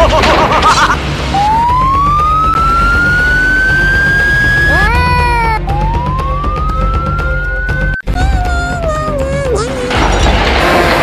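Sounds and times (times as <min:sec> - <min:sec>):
police siren: 0:01.3 - 0:04.9, 0:05.6 - 0:08.0.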